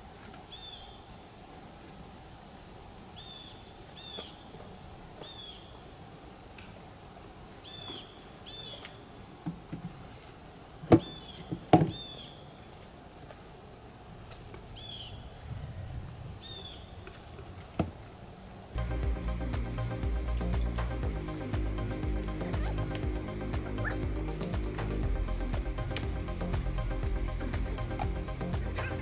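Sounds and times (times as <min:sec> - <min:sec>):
bird chirping: 0:18.8 - 0:29.0.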